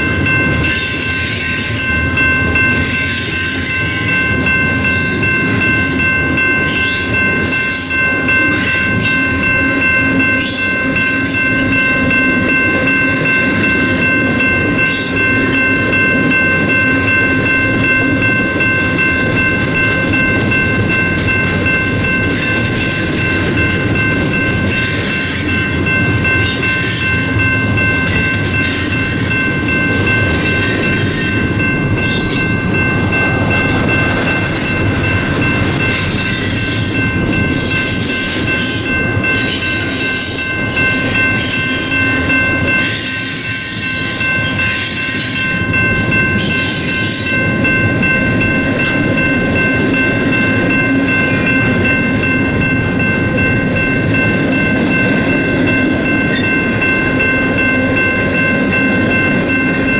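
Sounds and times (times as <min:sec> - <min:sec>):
train wheels rumbling on rail: 0:00.0 - 0:59.9
rattling clatter of train cars: 0:18.8 - 0:57.3.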